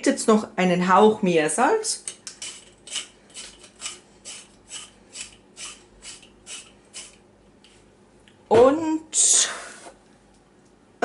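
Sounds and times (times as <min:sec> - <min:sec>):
salt dispenser strokes: 0:02.3 - 0:07.2.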